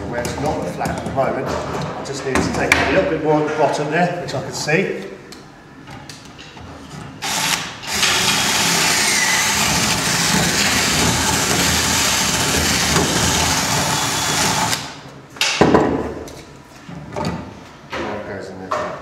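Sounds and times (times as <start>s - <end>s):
cordless drill boring into wood: 7.2s - 14.9s.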